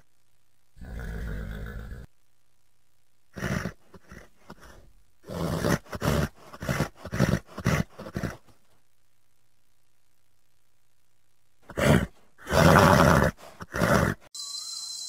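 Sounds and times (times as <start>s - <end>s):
animal's rough calls: 3.4s - 8.5s.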